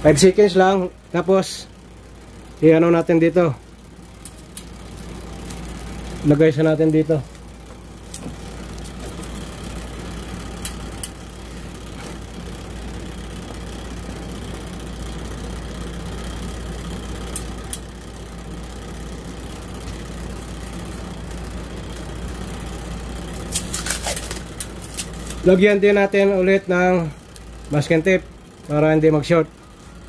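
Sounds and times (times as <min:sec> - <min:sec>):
steady low hum: 0:00.0 - 0:30.0
scratchy clicks: 0:17.2 - 0:18.3.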